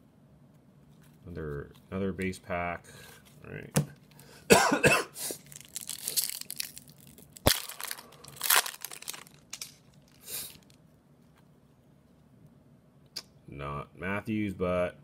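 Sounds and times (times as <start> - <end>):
foil wrapper crinkling and tearing: 5.3 - 10.8.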